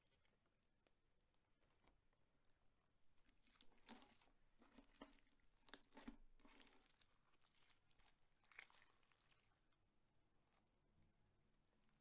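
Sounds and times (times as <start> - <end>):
sticky crackles of slime: 5.6 - 9.6.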